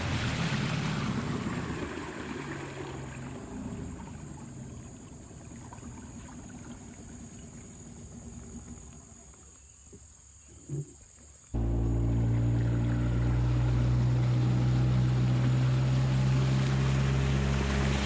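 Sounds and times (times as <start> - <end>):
boat motor running low: 11.6 - 18.0.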